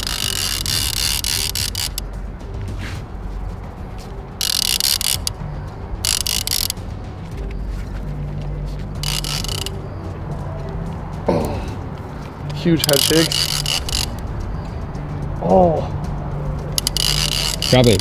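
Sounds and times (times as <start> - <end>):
fishing reel drag buzzing: 0.0 - 2.0, 4.4 - 5.4, 6.0 - 6.8, 9.0 - 9.8, 12.8 - 14.2, 16.8 - 18.0.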